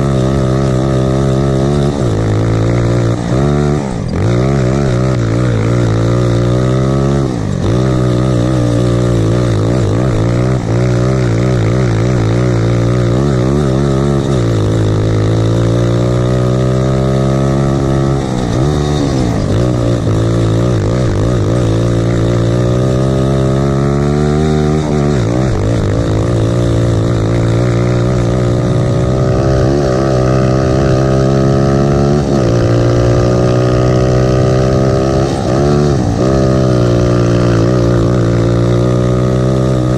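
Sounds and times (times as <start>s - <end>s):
kart engine revving: 0.0s - 39.9s.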